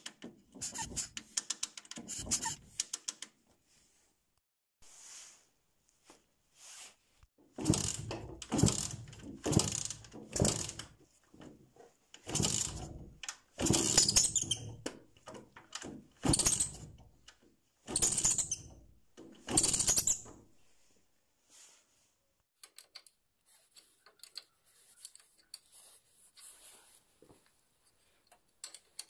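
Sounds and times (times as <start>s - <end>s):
engine being turned over: 7.6s - 11.0s, 12.2s - 14.5s.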